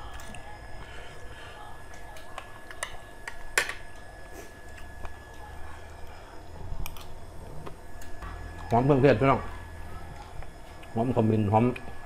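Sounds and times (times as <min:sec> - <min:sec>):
low steady hum: 0:00.0 - 0:12.0
cutlery clicking on a plate: 0:02.7 - 0:03.9.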